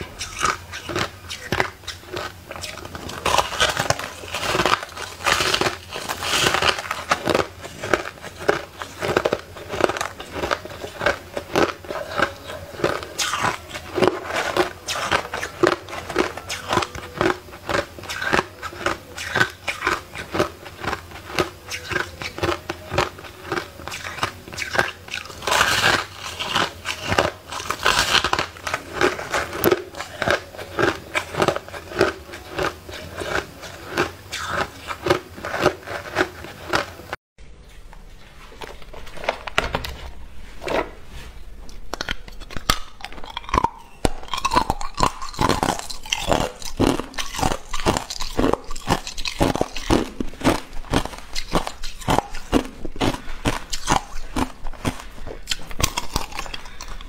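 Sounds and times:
crushed ice being chewed: 0.0 - 37.2, 38.4 - 40.0, 41.6 - 57.0.

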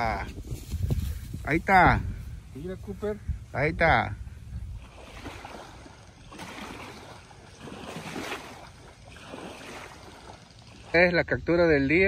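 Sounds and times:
wind blowing over microphone: 0.0 - 6.8.

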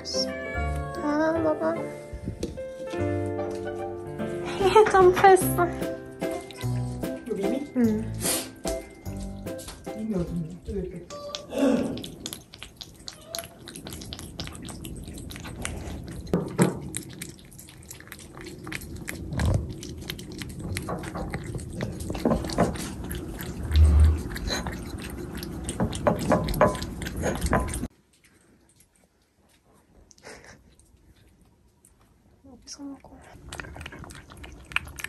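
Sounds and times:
cats eating wet food: 4.6 - 35.0.

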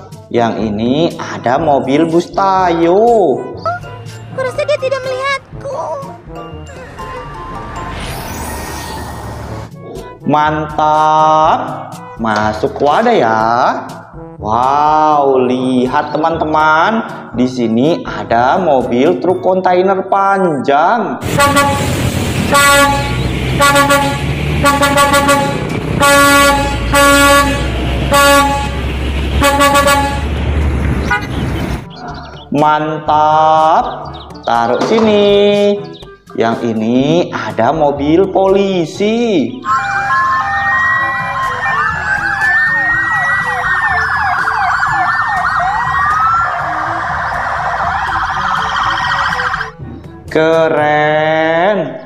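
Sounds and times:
truck horn blasts: 21.2 - 30.4, 31.0 - 31.5, 39.6 - 41.6
low engine rumble: 21.2 - 32.5
toy police siren wailing: 39.6 - 49.8.

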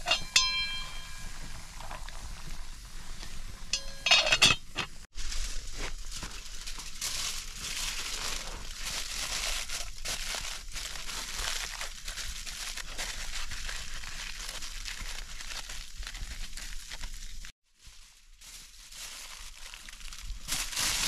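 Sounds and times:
aluminium foil crinkling: 5.2 - 21.0.

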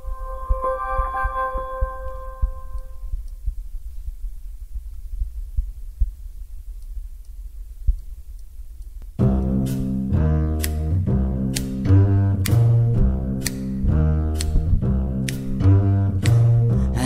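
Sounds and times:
low rumbling hum: 0.0 - 17.0
backing track with double bass: 9.2 - 17.0
finger snap click: 10.6 - 15.5, 16.2 - 16.6.

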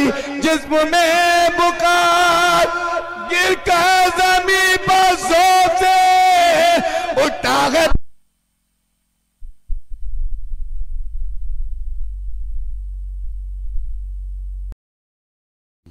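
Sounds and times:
man singing a recitation: 0.0 - 8.0
low electrical hum: 2.2 - 14.8.

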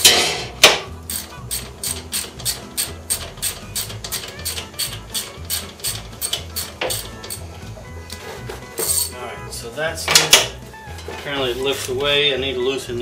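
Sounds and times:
ratchet wrench clicking: 1.1 - 7.5.

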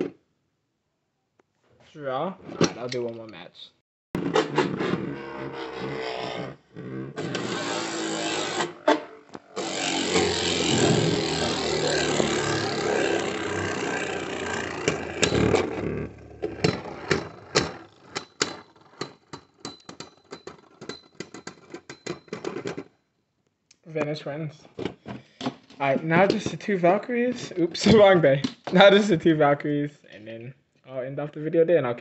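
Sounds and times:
spinning tops whirring and scraping: 7.2 - 21.9.

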